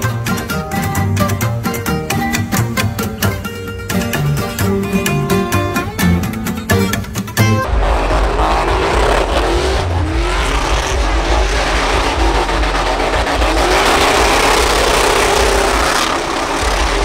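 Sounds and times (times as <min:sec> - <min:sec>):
music: 0:00.0 - 0:10.0
truck engine revving: 0:07.0 - 0:17.0
tyres spinning on pavement: 0:07.6 - 0:17.0.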